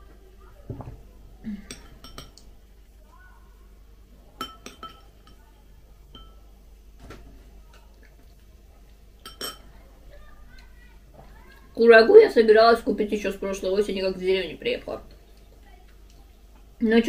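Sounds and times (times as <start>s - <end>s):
metal spoon clinking on glass: 1.7s - 2.4s, 4.4s - 5.4s, 6.1s - 6.5s, 9.2s - 9.7s.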